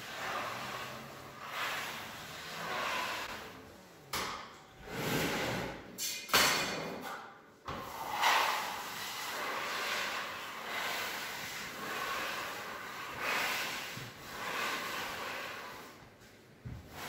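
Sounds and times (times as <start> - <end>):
scraper scraping wooden floor: 0.0 - 3.6, 4.8 - 5.8, 8.0 - 16.1.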